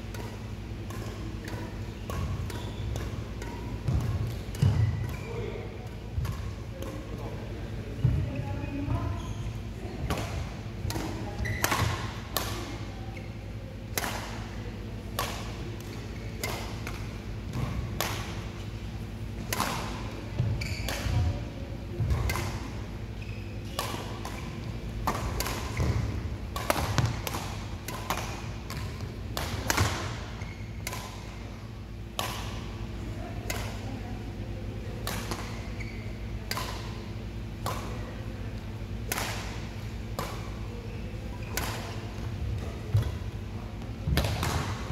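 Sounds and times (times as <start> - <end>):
racket striking shuttlecock: 0.0 - 7.2, 10.0 - 12.9, 13.9 - 18.7, 19.4 - 21.4, 22.0 - 22.8, 23.6 - 32.8, 33.4 - 33.8, 35.0 - 38.2, 38.8 - 40.7, 41.4 - 43.3, 44.1 - 44.9
steady low hall hum: 0.0 - 44.9.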